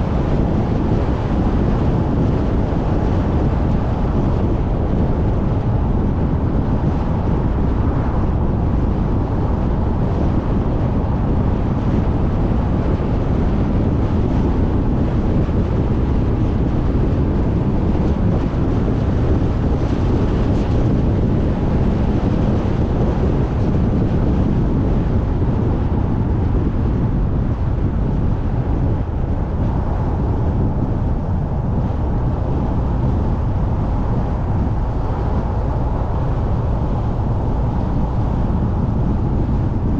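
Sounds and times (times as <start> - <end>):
car road and wind rumble: 0.0 - 39.9.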